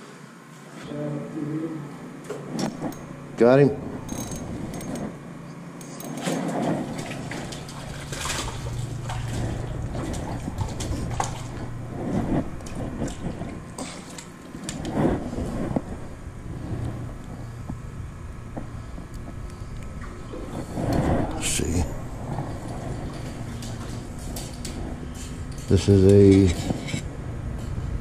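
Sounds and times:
low rumble of traffic: 0:01.1 - 0:28.0
water splashing: 0:06.2 - 0:11.9.

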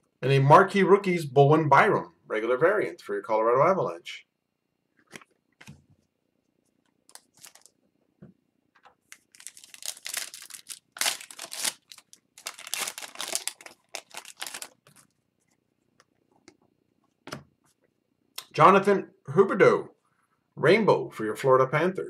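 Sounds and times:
foil wrapper tearing and crinkling: 0:07.1 - 0:07.7, 0:09.1 - 0:15.1.

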